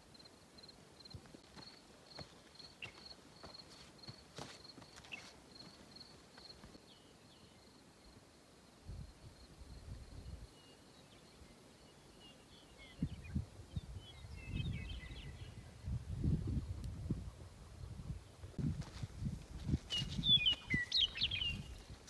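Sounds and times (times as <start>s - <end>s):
footstep scuffs: 1.4s - 6.8s
bird chirps: 5.0s - 5.7s, 10.5s - 15.8s, 19.9s - 21.8s
wind buffeting microphone: 12.8s - 22.0s.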